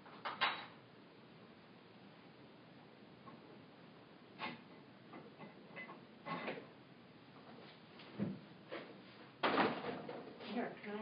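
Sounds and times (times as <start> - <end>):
objects knocking and clattering: 0.0 - 0.8, 4.4 - 6.7, 8.2 - 10.6.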